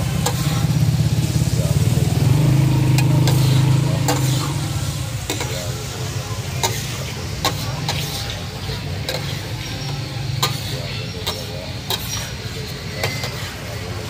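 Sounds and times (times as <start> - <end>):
oil sizzling: 0.0 - 14.0
metal spatula scraping a griddle: 0.1 - 0.8, 2.7 - 5.6, 6.6 - 14.0.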